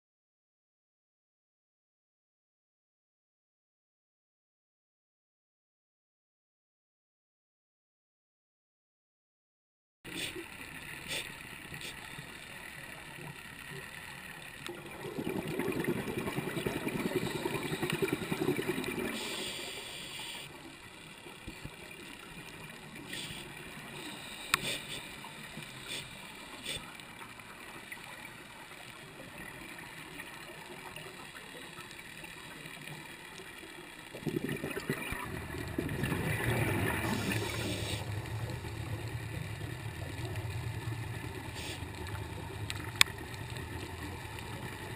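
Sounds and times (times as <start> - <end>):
steady hiss: 10.1 - 14.5, 16.9 - 27.8, 36.8 - 44.5
exhaled bubbles gurgling underwater: 14.6 - 26.8, 33.9 - 44.9.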